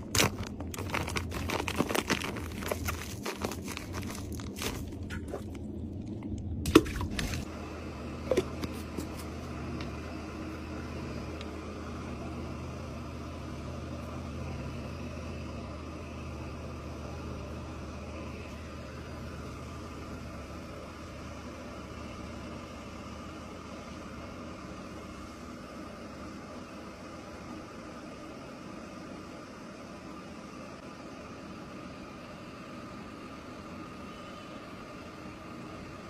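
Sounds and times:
plastic sachet crinkling and tearing: 0.0s - 5.6s
low background hum: 0.0s - 36.0s.

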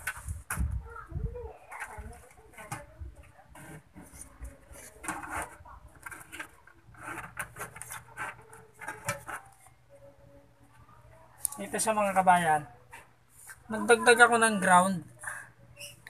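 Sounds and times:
metal parts rubbing and scraping: 3.5s - 9.6s.

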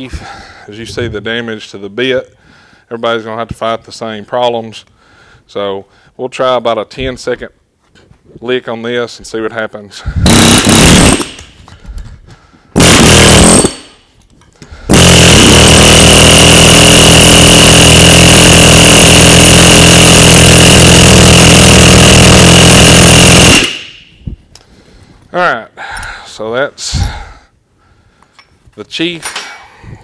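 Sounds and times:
pneumatic air hammer on metal: 10.2s - 11.6s, 12.8s - 14.1s, 14.9s - 18.5s, 19.1s - 24.2s.

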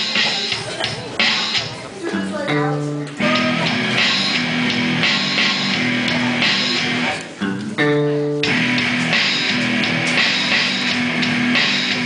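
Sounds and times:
bass guitar: 0.0s - 12.0s
electronic drum kit: 0.0s - 12.0s
electric guitar: 2.5s - 12.0s.

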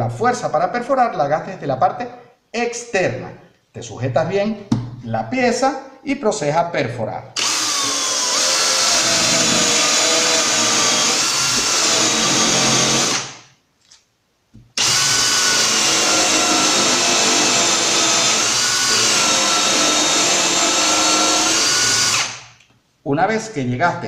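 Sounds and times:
cordless drill whining: 7.4s - 13.4s, 14.8s - 22.4s.

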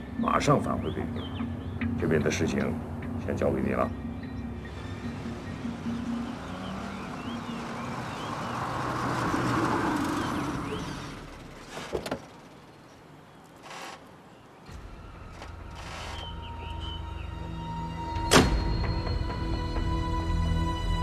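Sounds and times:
birds chirping: 0.0s - 19.2s
car driving past: 4.4s - 11.7s.

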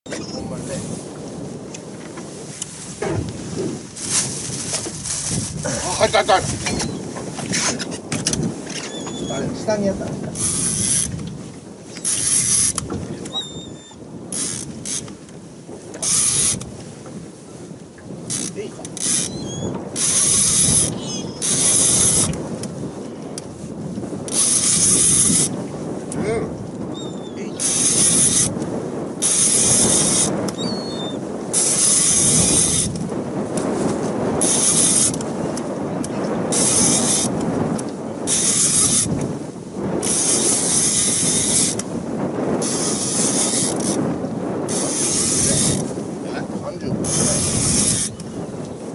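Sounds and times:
wind on microphone: 0.0s - 48.9s
fishing reel gears ratcheting: 10.4s - 11.2s, 12.0s - 12.9s, 14.3s - 15.2s, 16.0s - 16.7s, 18.3s - 19.4s, 20.0s - 22.7s, 24.3s - 25.5s, 27.6s - 28.6s, 29.2s - 30.6s, 31.5s - 33.0s, 34.4s - 35.3s, 36.5s - 37.4s, 38.3s - 39.1s, 40.0s - 41.8s, 42.6s - 44.0s, 44.7s - 45.9s, 47.0s - 48.2s.

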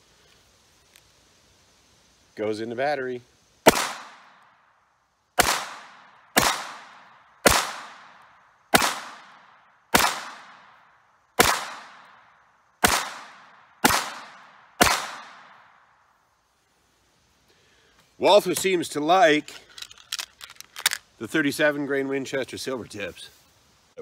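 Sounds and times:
pistol gunshots: 3.7s - 4.4s, 5.4s - 10.8s, 11.4s - 12.2s, 12.8s - 15.5s.

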